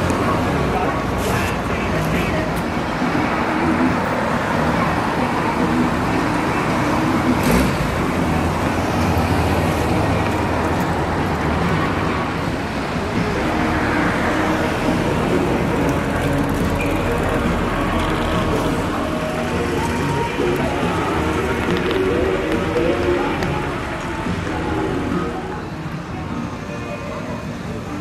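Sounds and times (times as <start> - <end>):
car engines running slowly: 0.0 - 26.5
street traffic noise: 0.0 - 28.0.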